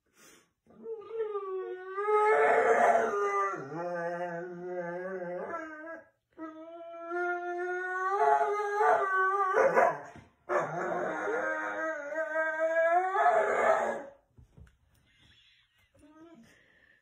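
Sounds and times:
dog howling: 0.8s - 14.2s.

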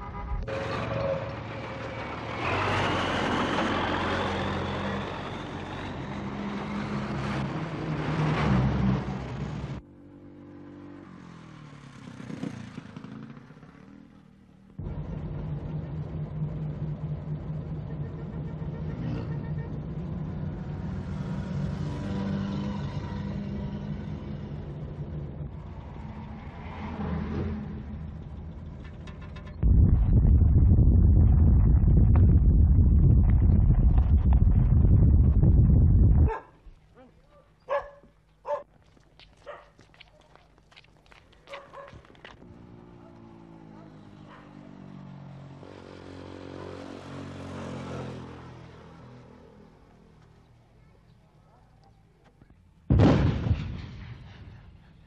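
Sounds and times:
vehicle engine running while driving: 11.0s - 36.4s
vehicle engine passing by: 18.8s - 28.8s, 42.5s - 50.0s.

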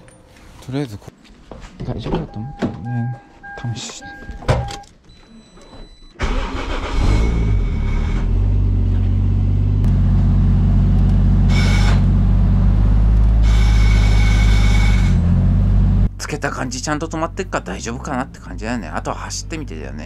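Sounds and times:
car engine starting and running: 6.2s - 20.0s.

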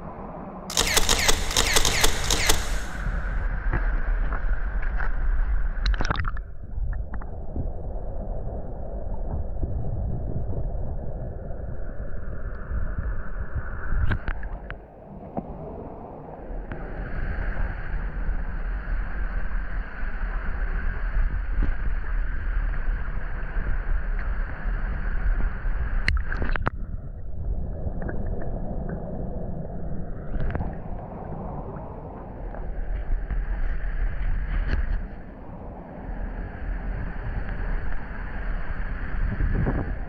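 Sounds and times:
muffled gurgling water: 0.0s - 0.7s, 2.6s - 40.0s
sharp clicks: 0.7s - 3.4s.

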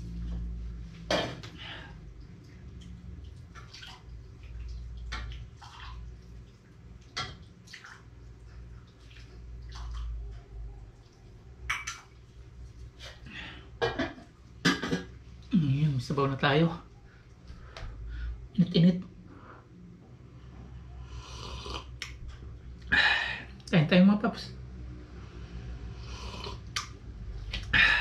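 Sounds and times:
liquid pouring and splashing: 1.3s - 13.2s.

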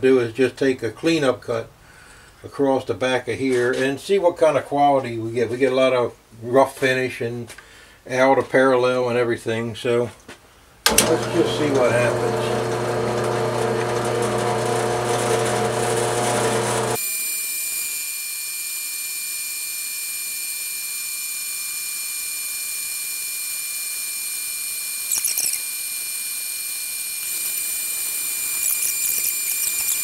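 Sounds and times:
low motor hum: 10.9s - 17.0s
high whine of milling cut: 10.9s - 30.0s
brief squeal: 25.0s - 25.8s, 27.2s - 30.0s.

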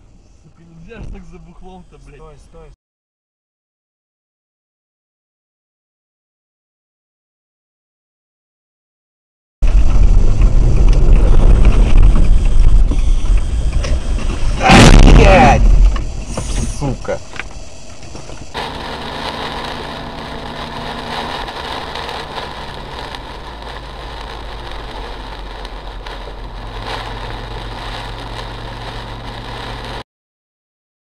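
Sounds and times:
low car engine hum: 9.6s - 30.0s
tyres and rain hissing: 9.7s - 30.0s.

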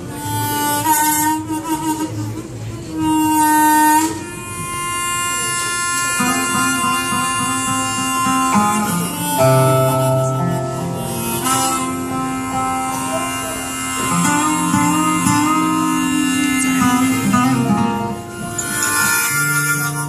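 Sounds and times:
acoustic guitar: 0.0s - 20.0s
held melody notes: 5.4s - 20.0s.

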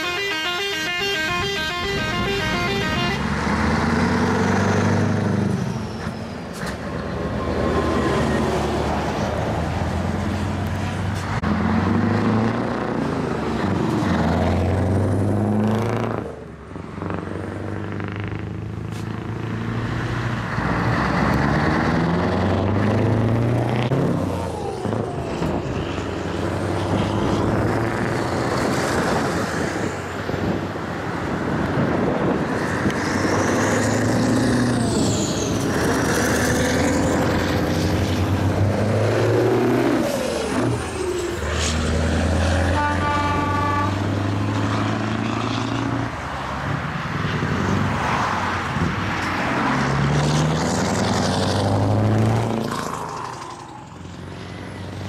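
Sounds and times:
truck horn toots: 0.0s - 3.4s, 42.6s - 44.2s
diesel engines pulling hard: 0.0s - 55.0s
heavy trucks passing: 0.0s - 55.0s.

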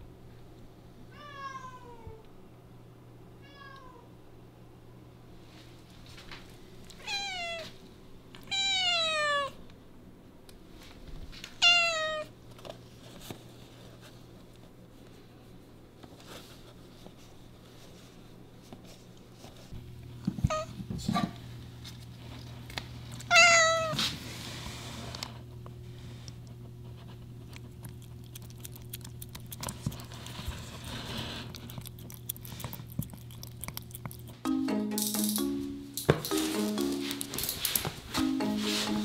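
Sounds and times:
cat meowing: 1.1s - 2.2s, 7.0s - 7.7s, 8.5s - 9.6s, 11.6s - 12.3s, 23.3s - 24.0s.

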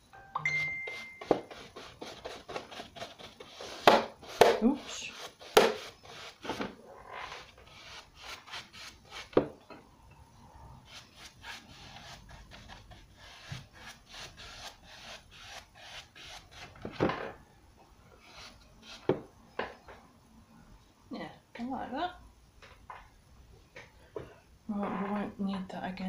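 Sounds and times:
paintbrush scrubbing strokes: 0.9s - 6.6s, 10.9s - 16.7s, 18.2s - 19.0s.

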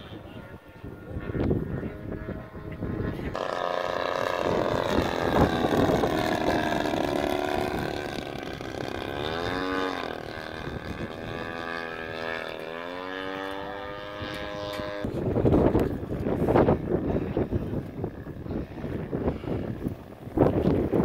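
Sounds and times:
model airplane motor whine: 0.0s - 21.0s.

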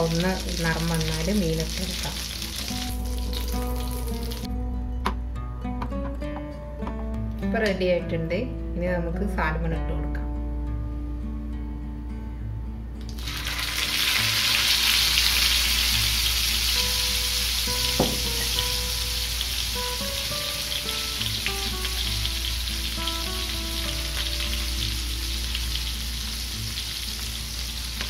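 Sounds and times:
fish sizzling in a pan: 0.0s - 4.5s, 13.1s - 28.0s.

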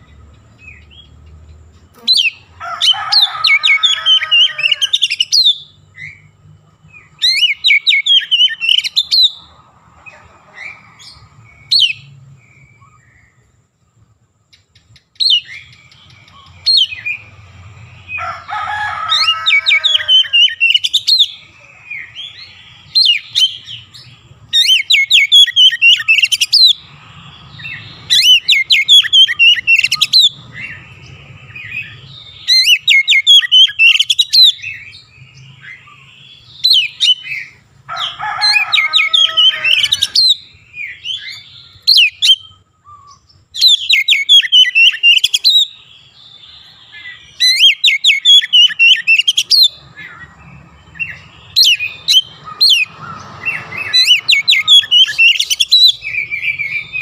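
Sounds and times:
bird singing whistled notes: 3.8s - 9.4s, 14.6s - 17.3s, 19.3s - 37.6s, 38.9s - 57.0s.

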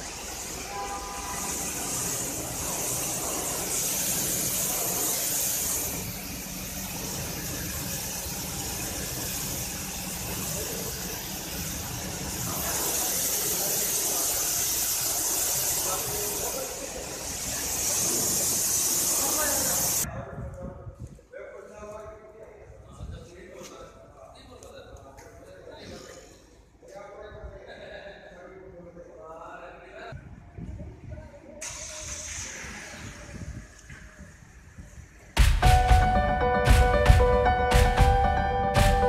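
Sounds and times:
pressure washer jet hissing: 0.0s - 20.1s, 31.6s - 34.6s.

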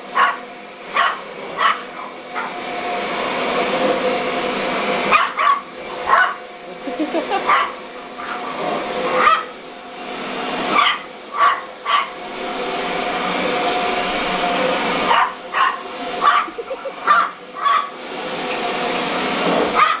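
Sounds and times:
vacuum cleaner on carpet: 0.0s - 20.0s
small dog barking: 0.2s - 0.4s, 1.0s - 2.6s, 5.1s - 6.4s, 7.4s - 8.4s, 9.2s - 9.5s, 10.8s - 12.1s, 15.1s - 17.9s, 19.8s - 20.0s.

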